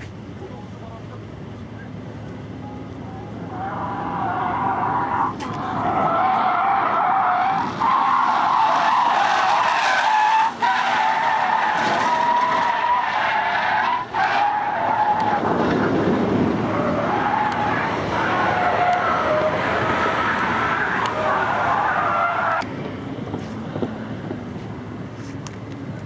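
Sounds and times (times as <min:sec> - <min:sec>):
car engine running hard: 0:00.0 - 0:26.0
tyres squealing: 0:03.3 - 0:15.5, 0:16.6 - 0:22.7.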